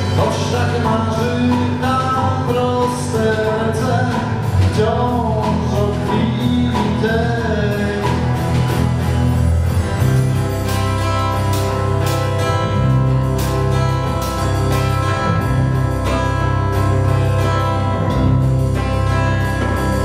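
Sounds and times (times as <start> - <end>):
acoustic guitar: 0.0 - 20.0
bass guitar: 0.0 - 20.0
drums: 0.0 - 20.0.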